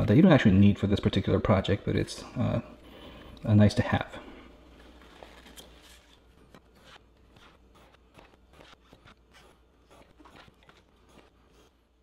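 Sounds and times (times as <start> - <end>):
pencil scratching on foam board: 6.7 - 11.8.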